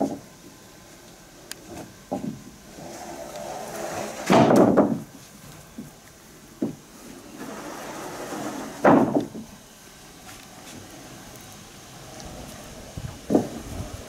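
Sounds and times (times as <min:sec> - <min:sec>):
boards clattering: 0:01.7 - 0:06.0, 0:06.6 - 0:09.6, 0:12.4 - 0:13.8.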